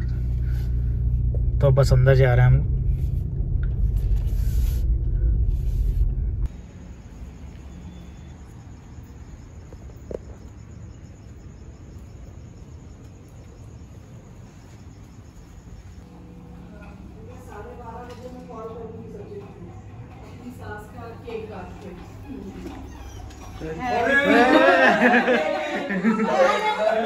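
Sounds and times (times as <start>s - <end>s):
loud low rumble inside car: 0.0s - 6.5s
crickets chirring: 6.4s - 27.0s.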